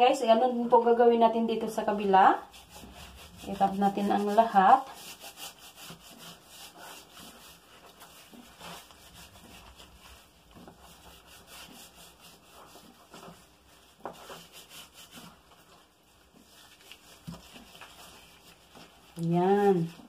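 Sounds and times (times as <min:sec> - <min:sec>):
hands rubbing meat: 0:01.8 - 0:20.0.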